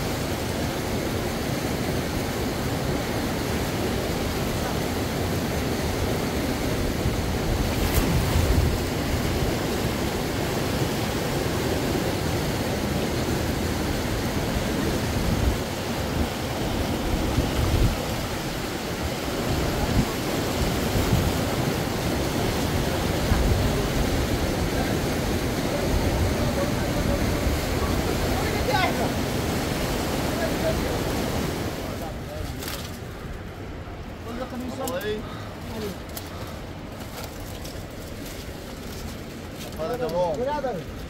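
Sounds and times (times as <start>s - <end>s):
river flowing: 0.0s - 41.0s
wind buffeting microphone: 3.9s - 10.6s, 12.4s - 32.4s.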